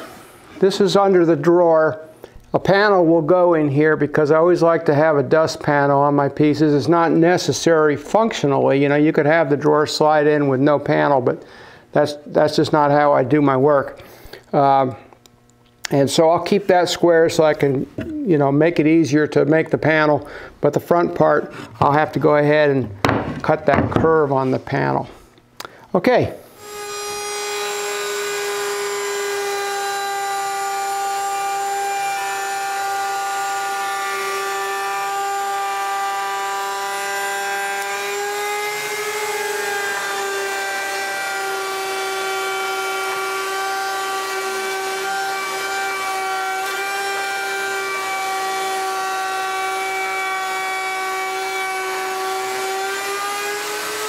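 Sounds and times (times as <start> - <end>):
router bit cutting wood: 26.5 - 54.0
router motor whine: 26.5 - 54.0.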